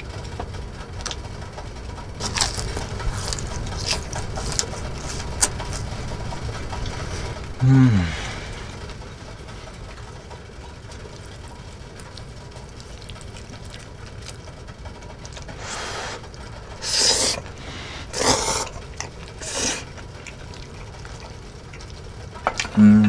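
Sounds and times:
person slurping noodles: 0:15.6 - 0:20.0.

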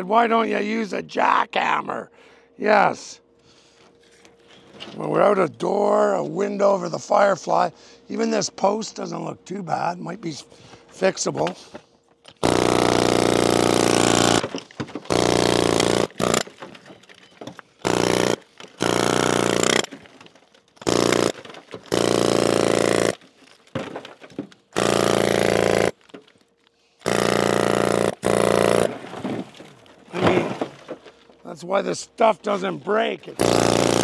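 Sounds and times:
pneumatic hammer chiselling rock: 0:12.3 - 0:26.3, 0:27.0 - 0:31.2, 0:33.4 - 0:34.0.

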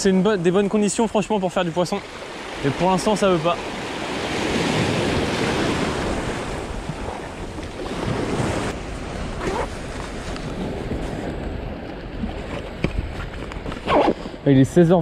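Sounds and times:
waves breaking over rocks: 0:00.4 - 0:14.4
wind buffeting microphone: 0:02.2 - 0:15.0.

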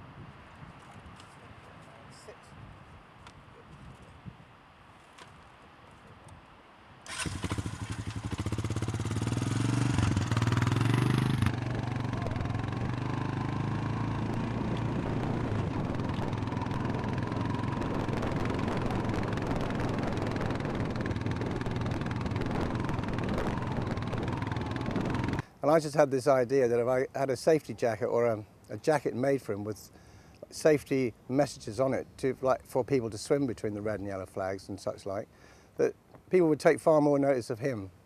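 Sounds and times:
motor engine running: 0:07.2 - 0:25.4.

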